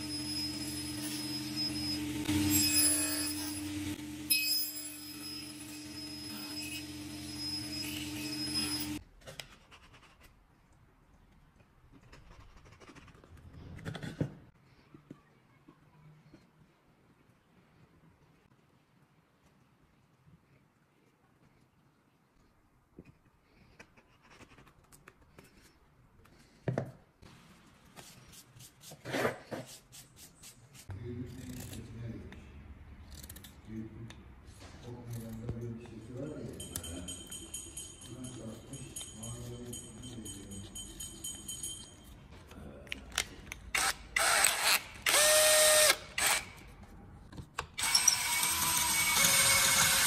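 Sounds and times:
power tool running: 0.0s - 9.0s, 43.7s - 46.6s, 47.8s - 50.0s
small power tool motor spinning: 0.0s - 9.0s, 43.7s - 46.6s, 47.8s - 50.0s.

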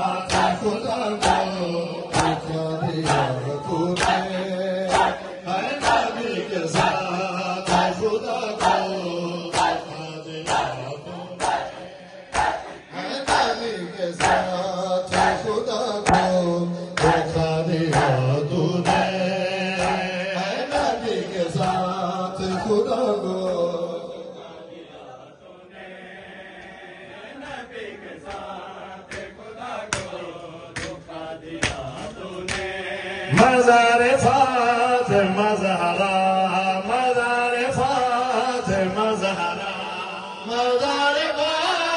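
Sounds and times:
amplified voice reciting: 0.0s - 41.9s
men chanting in unison: 0.0s - 41.9s.

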